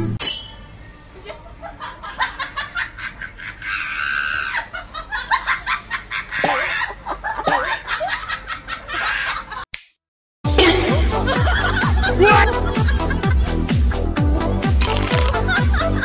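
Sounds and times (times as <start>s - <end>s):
people laughing: 1.2s - 9.6s, 10.6s - 13.7s, 15.1s - 16.0s.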